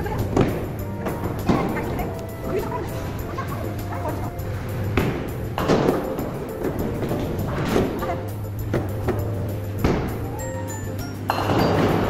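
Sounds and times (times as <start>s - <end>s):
music: 0.0s - 12.0s
bowling ball hitting pins: 0.2s - 2.1s, 4.6s - 10.3s, 11.3s - 12.0s.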